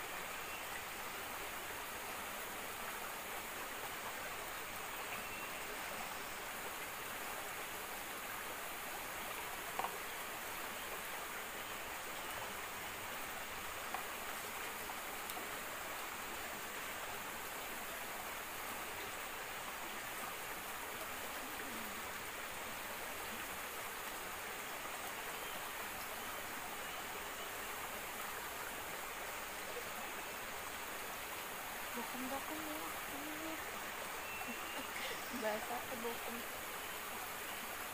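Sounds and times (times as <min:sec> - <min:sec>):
stream running: 0:00.0 - 0:37.9
faint clicks: 0:09.7 - 0:10.0, 0:15.2 - 0:15.5.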